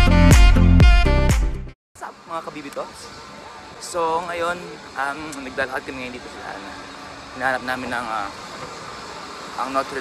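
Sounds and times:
music with beat and bass line: 0.0s - 1.7s.

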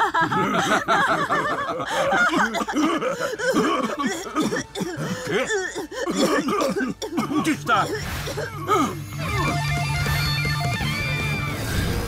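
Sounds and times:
cartoon villains laughing: 0.0s - 3.2s.

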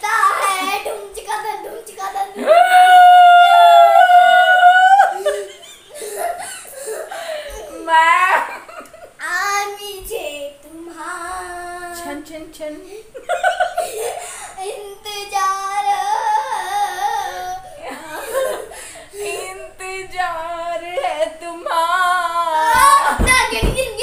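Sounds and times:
woman and girl singing: 9.2s - 12.9s, 14.7s - 24.0s.

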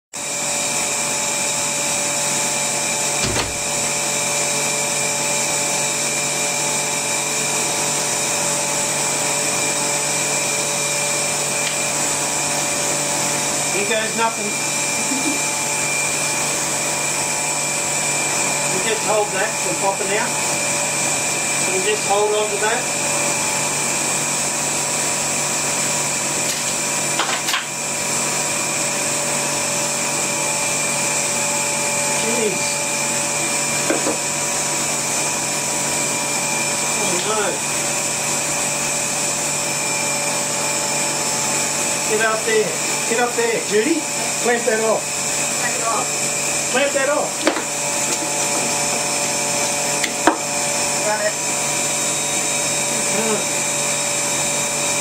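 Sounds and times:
vacuum pump whining: 0.2s - 55.0s
brief knock: 3.2s - 3.6s.

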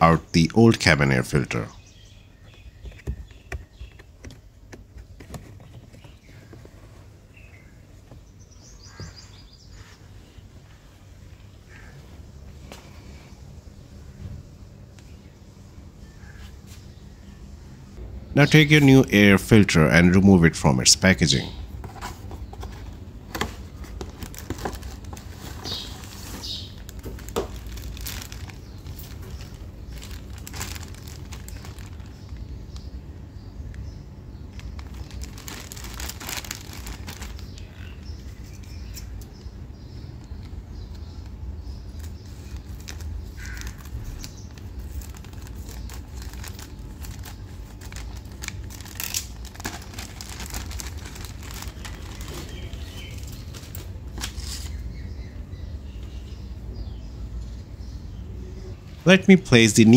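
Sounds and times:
birds chirping: 0.0s - 59.9s
low background noise: 0.0s - 59.9s
air filter rubbing in plastic housing: 2.8s - 7.1s
low background rumble: 13.2s - 20.7s, 21.4s - 54.2s
plastic wrapping crinkling: 21.9s - 33.0s, 34.5s - 39.1s, 41.2s - 54.8s.

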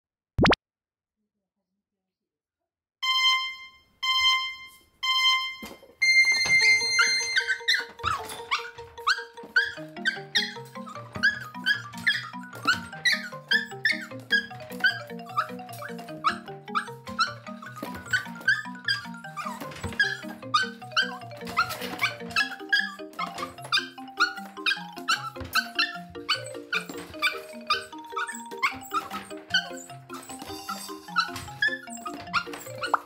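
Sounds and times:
light background music: 4.0s - 33.0s
puppy sounds: 6.3s - 33.0s.

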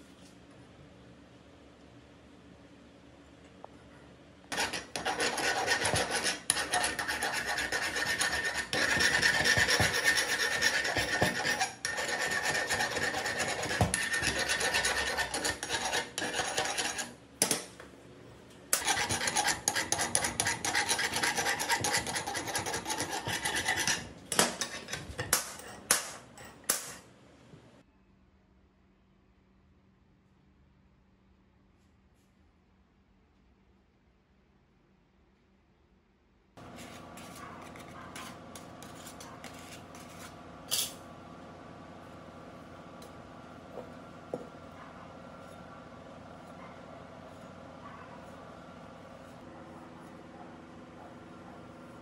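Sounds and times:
hand file rasping on metal: 4.5s - 17.1s, 18.8s - 25.1s.

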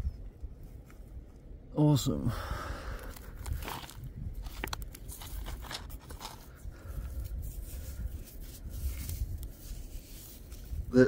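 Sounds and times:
stones scraping and clicking: 3.0s - 10.8s.

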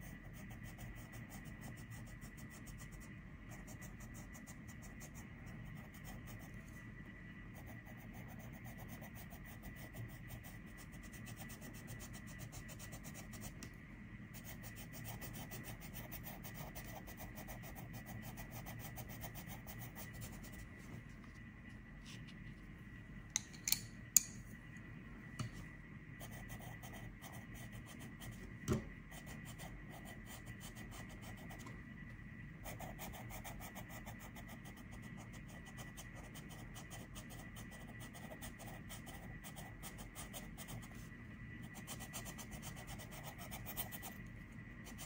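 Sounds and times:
pencil scratching on paper: 0.0s - 6.8s, 7.5s - 13.6s, 14.3s - 20.6s, 26.2s - 28.4s, 32.6s - 44.2s.

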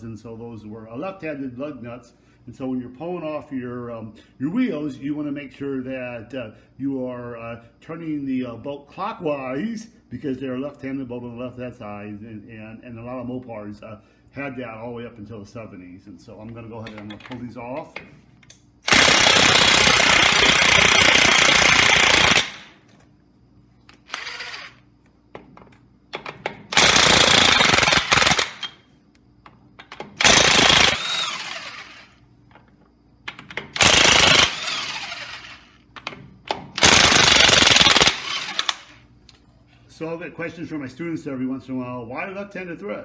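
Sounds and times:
impact wrench hammering lug nuts: 18.9s - 22.8s, 26.1s - 28.8s, 29.5s - 32.0s, 33.3s - 39.0s.

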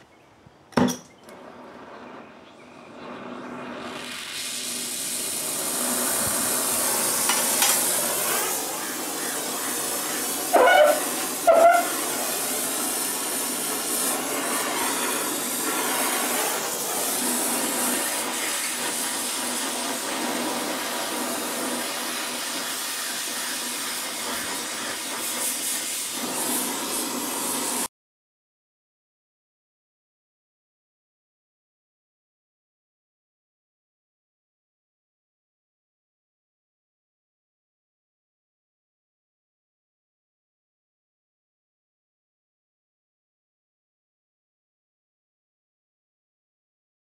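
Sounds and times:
gas torch hissing: 1.3s - 27.9s.

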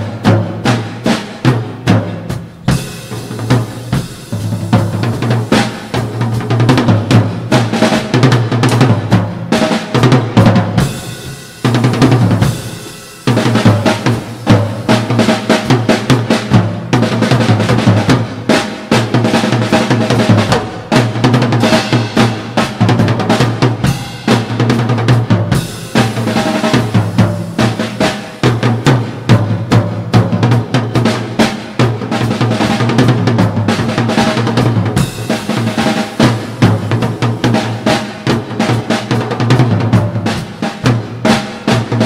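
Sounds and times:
cymbal wash: 0.0s - 8.2s, 10.7s - 16.9s, 23.4s - 24.8s, 25.4s - 30.0s, 34.2s - 39.2s
snare and bass drum strokes: 0.0s - 42.0s.

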